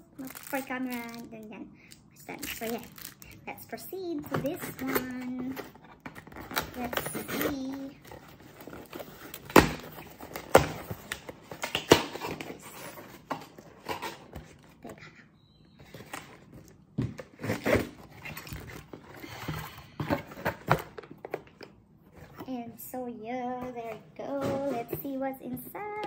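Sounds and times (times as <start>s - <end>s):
cardboard scraping and rustling: 4.3s - 14.8s, 15.9s - 19.4s.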